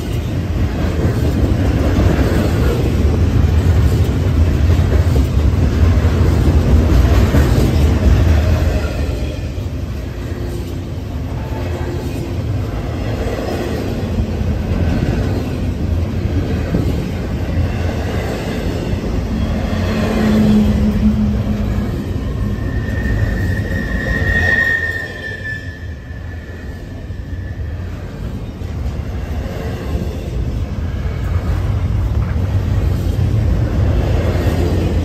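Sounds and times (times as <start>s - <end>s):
rumble of wheels on rail: 0.0s - 35.0s
high wheel squeal: 19.3s - 28.2s.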